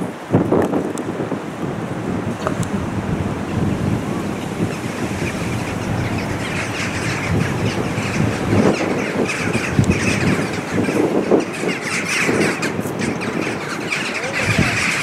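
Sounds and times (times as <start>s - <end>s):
steady low rush: 1.6s - 10.1s
flock of birds squawking: 2.4s - 15.0s.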